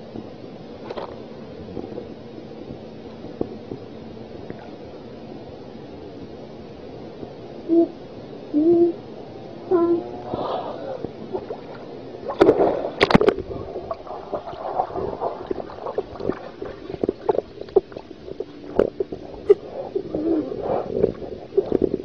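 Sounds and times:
underwater gurgling and bubbling: 10.3 - 22.0
underwater clicks: 11.0 - 19.6.

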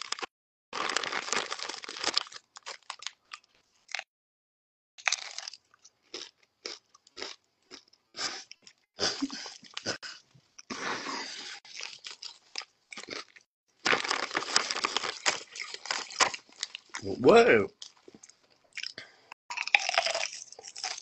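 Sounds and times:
chips crunching and chewing: 0.0 - 4.0, 5.0 - 8.8, 11.6 - 17.0, 17.8 - 21.0
hand rummaging in foil bag: 0.8 - 2.4, 13.9 - 16.3.

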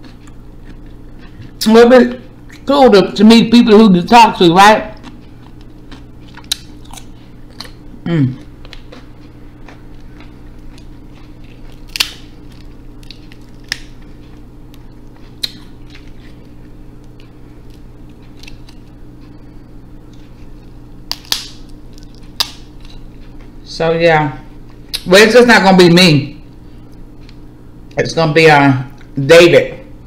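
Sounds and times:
crab shells cracking: 5.0 - 7.8, 10.0 - 18.9, 21.1 - 23.1.

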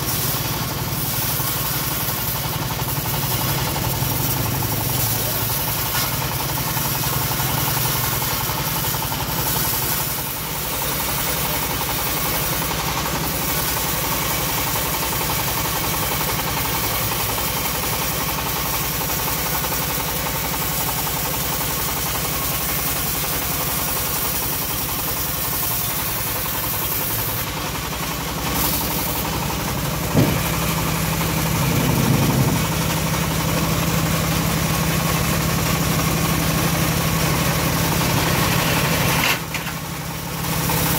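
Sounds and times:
bandsaw mill cutting wood: 0.0 - 40.9
sharp knock: 30.1 - 30.6.

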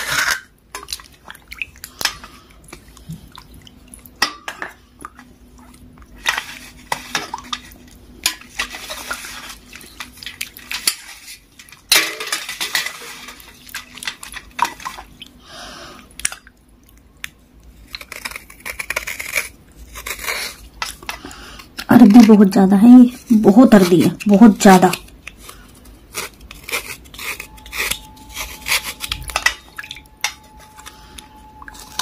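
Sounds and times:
knife scraping: 17.9 - 21.2, 23.1 - 32.0.

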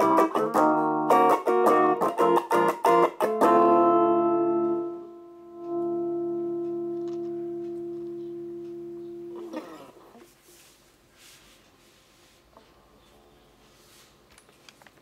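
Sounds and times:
electric guitar chords: 0.0 - 10.2
guitar string scrape: 9.3 - 10.3.

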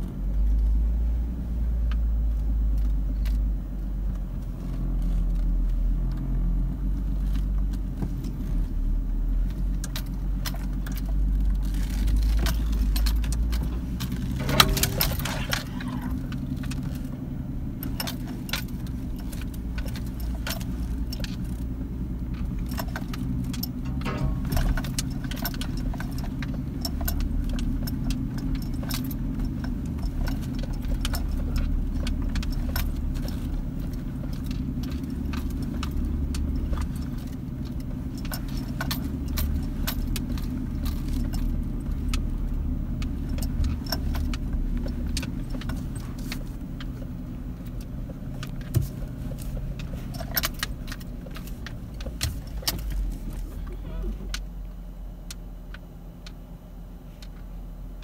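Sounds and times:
car engine running: 0.0 - 58.0
rattling and jangling clicks: 9.4 - 54.5.

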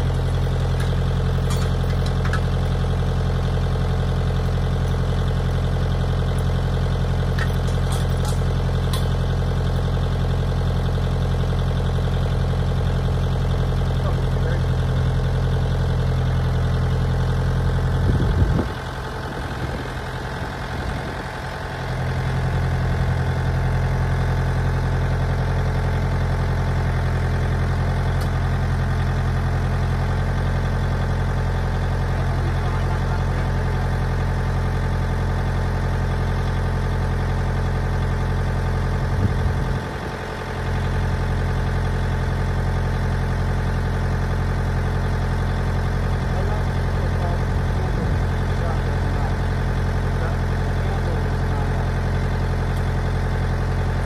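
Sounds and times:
tractor diesel engine idling: 0.0 - 54.0.

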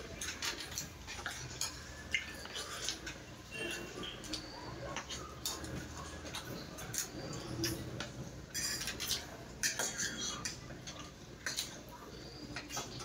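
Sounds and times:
forks clinking on ceramic plates: 8.5 - 10.3.

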